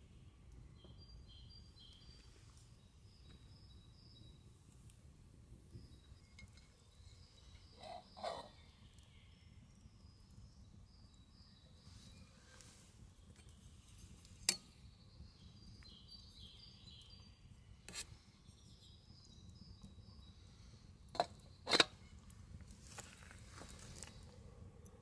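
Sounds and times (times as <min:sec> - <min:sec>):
birds chirping: 0:05.6 - 0:13.8
camp cookware clinking: 0:06.1 - 0:08.6, 0:14.3 - 0:14.8, 0:21.1 - 0:22.2.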